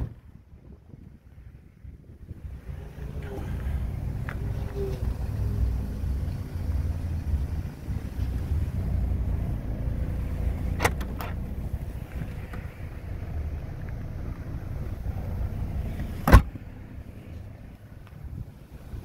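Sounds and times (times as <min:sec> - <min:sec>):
trunk latch clicking: 0:10.7 - 0:11.5, 0:16.2 - 0:16.6.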